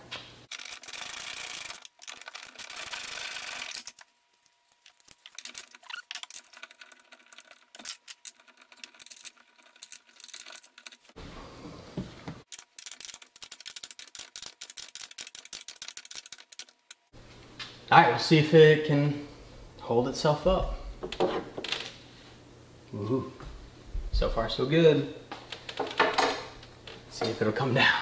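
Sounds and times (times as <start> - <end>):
small metal clicks and rattles: 0.5 - 4.1, 4.8 - 11.2, 12.5 - 17.1.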